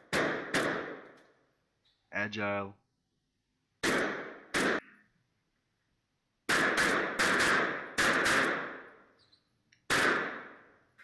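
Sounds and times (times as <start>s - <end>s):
pistol gunshots in indoor range: 0.0s - 1.2s, 3.8s - 4.9s, 6.4s - 11.0s.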